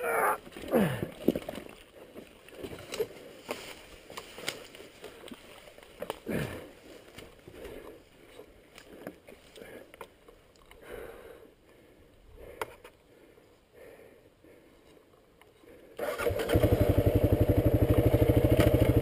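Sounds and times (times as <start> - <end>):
rustling in grass: 2.6 - 9.6
motorcycle knocking and rattling: 16.6 - 19.0.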